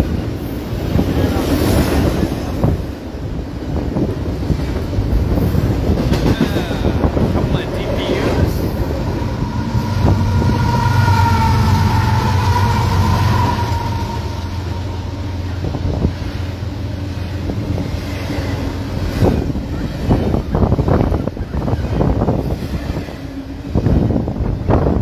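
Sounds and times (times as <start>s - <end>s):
train wheels rumbling on rails: 0.0s - 25.0s
high squeal: 8.9s - 15.7s.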